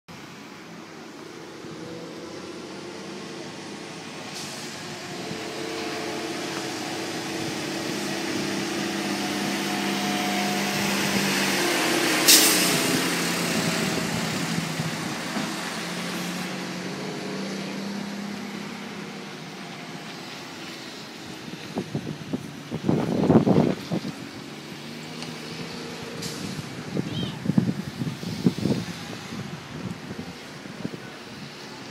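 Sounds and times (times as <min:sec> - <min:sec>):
diesel truck engine driving by: 0:00.6 - 0:31.9
air hiss: 0:12.2 - 0:12.9.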